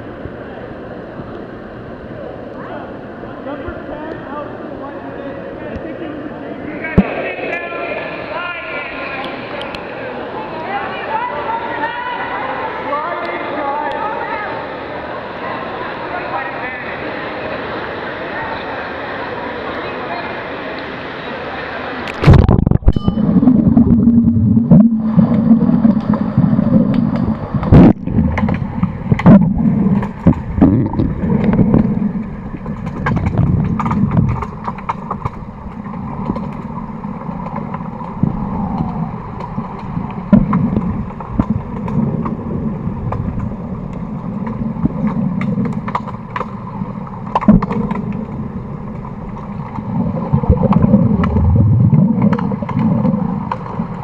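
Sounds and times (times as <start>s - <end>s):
underwater rush and gurgle of water: 16.9s - 54.0s
sharp underwater clicks and knocks: 24.7s - 54.0s.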